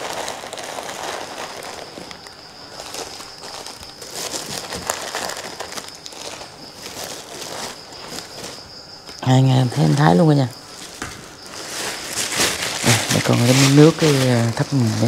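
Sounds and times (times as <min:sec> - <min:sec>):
plastic bags crinkling: 0:00.0 - 0:08.9, 0:10.1 - 0:15.0.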